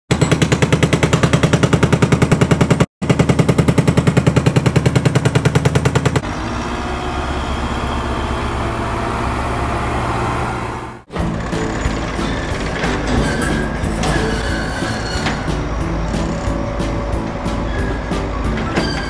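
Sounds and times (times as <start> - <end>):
jackhammer pounding: 0.1 - 13.2
heavy vehicle engine running: 0.2 - 19.0.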